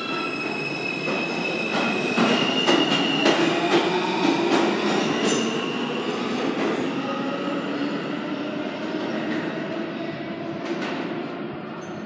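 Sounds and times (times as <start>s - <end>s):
subway train whine and rumble: 0.0s - 12.0s
train wheels clacking on track: 1.0s - 5.5s.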